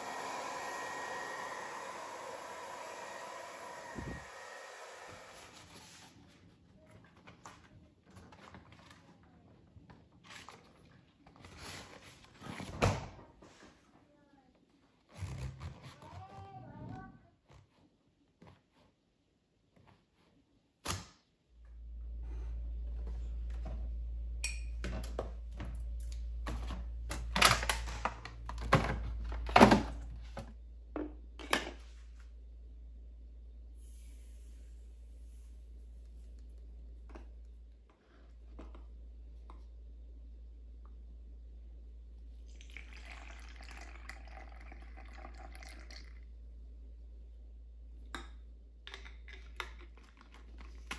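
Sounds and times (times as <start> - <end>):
low steady hum: 21.5 - 50.9.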